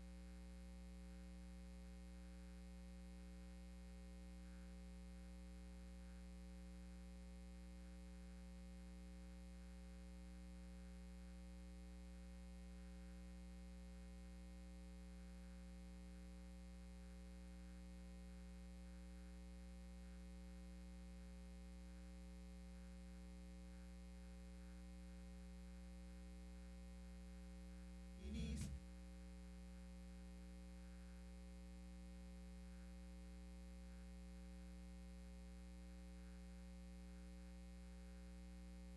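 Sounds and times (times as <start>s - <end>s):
electrical mains hum: 0.0s - 38.9s.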